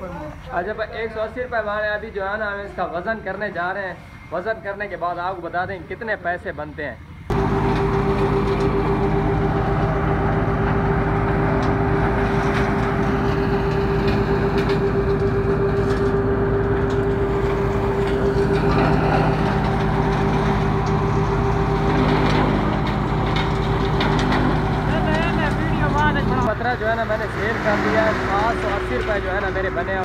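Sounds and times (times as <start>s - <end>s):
chopping machine engine humming: 7.3s - 30.0s.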